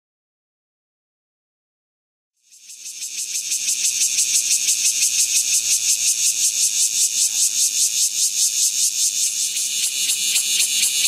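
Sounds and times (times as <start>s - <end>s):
cicada buzzing: 2.4s - 11.0s.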